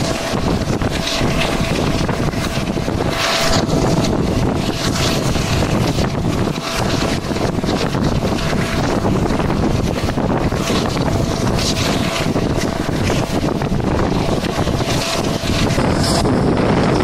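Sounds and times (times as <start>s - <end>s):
train running noise: 0.0s - 17.0s
wind buffeting microphone: 0.0s - 17.0s.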